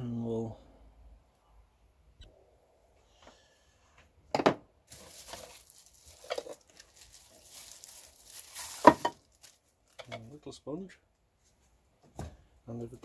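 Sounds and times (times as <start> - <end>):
plastic wrapping crinkling: 4.9 - 10.3.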